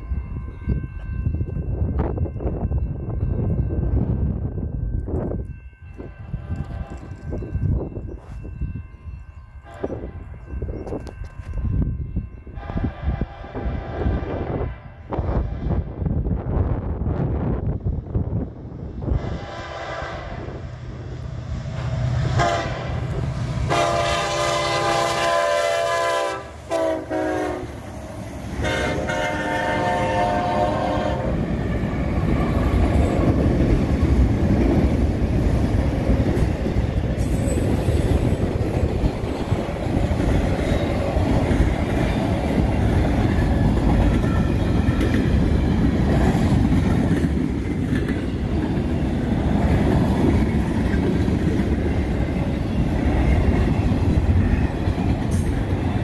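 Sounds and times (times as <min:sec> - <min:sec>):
freight train rumbling past: 0:00.0 - 0:56.0
train air horn blasts: 0:09.6 - 0:10.2, 0:12.6 - 0:15.7, 0:19.2 - 0:20.7, 0:22.3 - 0:27.8, 0:28.6 - 0:31.4
wheels clacking on rail joints: 0:31.3 - 0:56.0.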